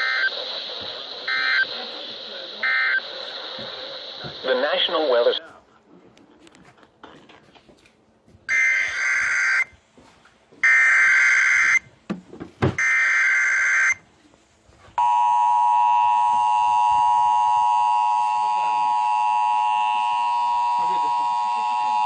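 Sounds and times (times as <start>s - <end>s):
warbling data tones: 0.0s - 1.9s, 2.6s - 4.9s.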